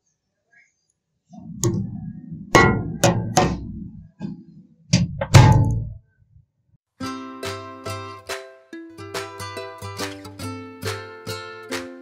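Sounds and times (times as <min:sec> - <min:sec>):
hard knocks with boomy rumble: 0:02.5 - 0:04.2, 0:04.9 - 0:06.0.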